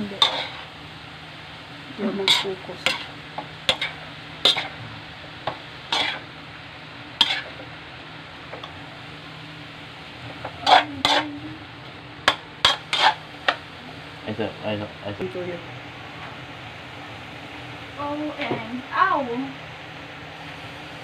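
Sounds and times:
metal spatula scraping a wok: 0.0 - 0.7, 2.2 - 4.8, 5.9 - 6.3, 7.2 - 7.6, 10.6 - 11.4, 12.3 - 13.2
low sizzle: 0.0 - 21.0.

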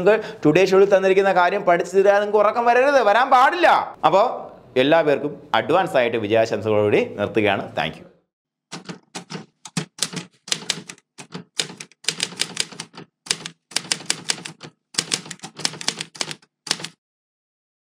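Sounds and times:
manual typewriter typing: 8.7 - 17.0.

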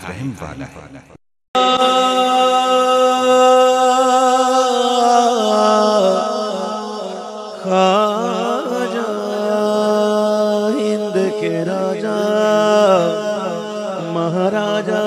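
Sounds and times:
person singing a long held note: 1.6 - 11.2.

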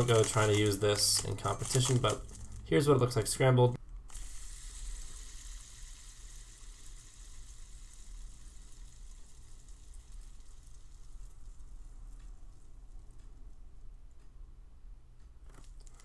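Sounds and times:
spinner cube whirring: 0.0 - 13.6.

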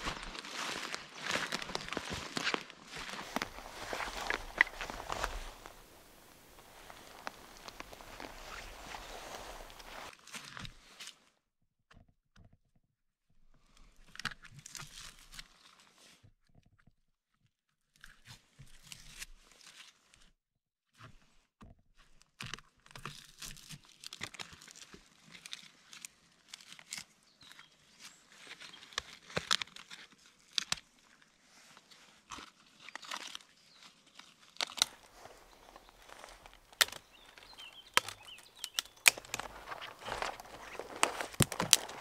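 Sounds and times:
footsteps on forest floor: 0.0 - 10.1, 34.8 - 42.0
bark crackling and tearing: 1.2 - 10.1, 34.6 - 42.0
dry twigs snapping: 1.2 - 10.1, 34.6 - 42.0.

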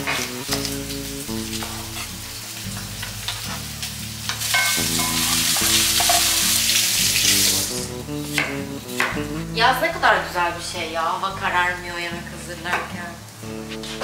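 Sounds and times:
food sizzling in hot oil: 0.0 - 10.0
soft background music: 0.0 - 14.0.

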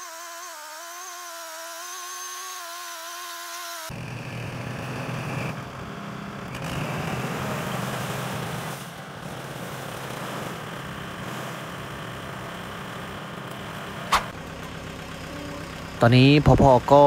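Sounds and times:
tractor diesel engine running: 3.9 - 17.0.

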